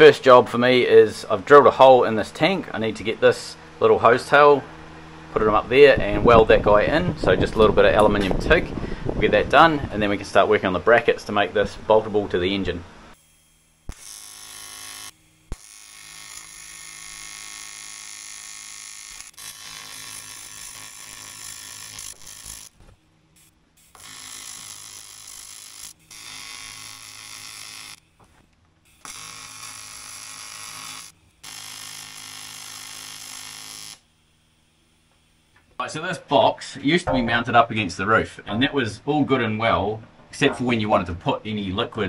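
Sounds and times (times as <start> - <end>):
welding arc buzzing: 12.5 - 35.8.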